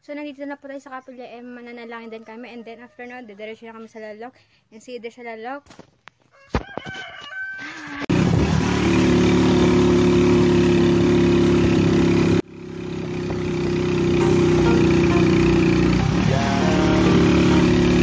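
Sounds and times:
vehicle engine running: 8.1s - 18.0s.

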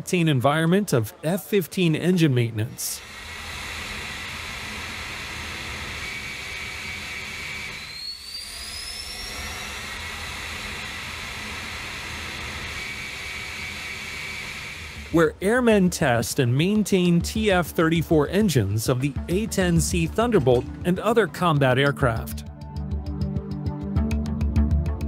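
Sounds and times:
high whine rising: 3.0s - 15.4s
jet engine running: 3.0s - 15.4s.

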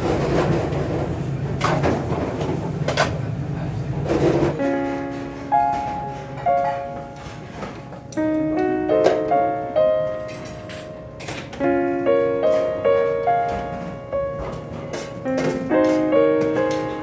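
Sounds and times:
slow piano music: 4.5s - 17.0s.

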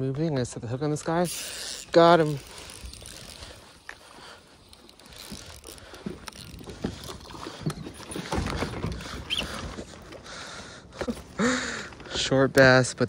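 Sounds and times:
water splashing: 4.8s - 10.5s.

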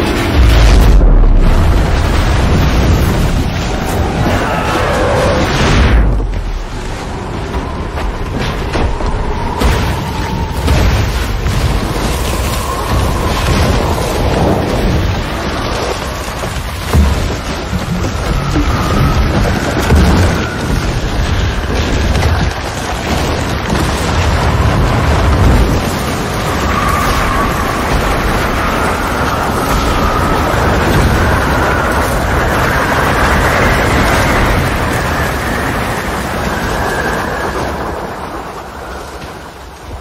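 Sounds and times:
roar of rushing snow: 0.0s - 40.0s.

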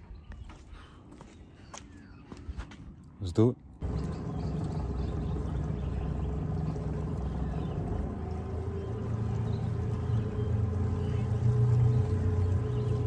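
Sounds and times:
outboard motor humming: 3.8s - 13.0s.

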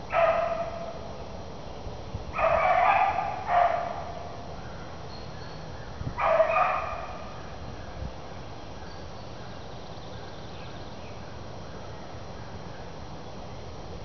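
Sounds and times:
steady background hiss: 0.0s - 14.0s
hound baying: 0.1s - 1.0s, 2.4s - 4.2s, 6.2s - 7.3s.

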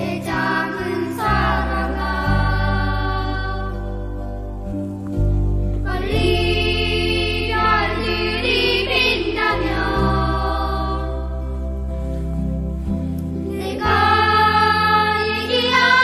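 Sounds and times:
pop ballad instrumental: 0.0s - 16.0s.

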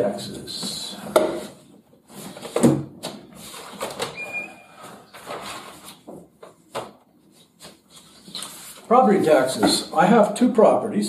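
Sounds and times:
papers rustling: 2.0s - 9.9s
brief high squeak: 4.1s - 4.8s.

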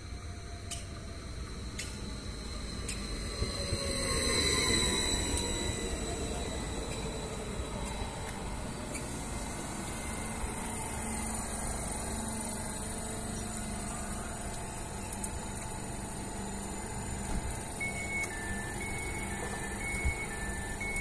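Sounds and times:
electric train humming: 0.0s - 21.0s.

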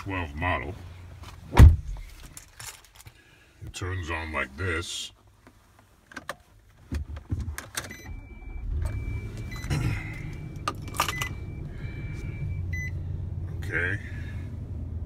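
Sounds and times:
car engine cranking and idling: 5.5s - 15.0s
soft dashboard chime: 7.9s - 13.0s.

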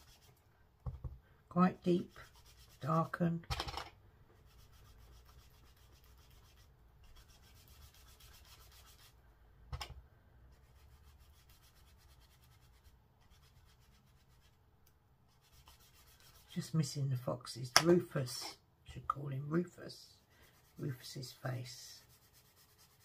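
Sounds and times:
brush rubbing on cardstock: 0.0s - 0.4s, 1.7s - 3.2s, 4.4s - 9.2s, 10.5s - 14.6s, 15.3s - 16.7s, 20.4s - 23.0s.

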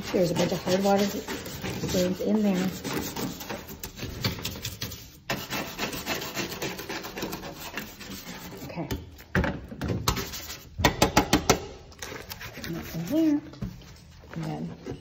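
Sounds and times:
scrub brush scrubbing metal: 0.0s - 8.9s.

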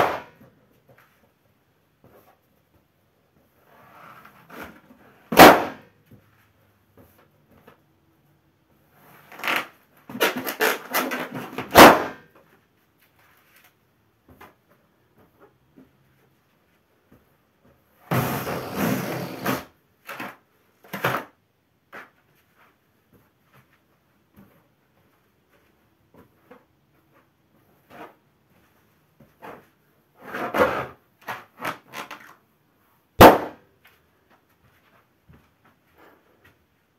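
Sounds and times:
balloon bursting with loud bang: 5.3s - 5.8s, 11.7s - 12.2s, 18.1s - 19.6s, 33.2s - 33.6s
rubber balloon creaking: 9.2s - 11.7s, 18.1s - 19.7s, 31.5s - 32.4s
balloon rubbing and squeaking: 18.1s - 19.7s
balloon popping: 33.2s - 33.6s.

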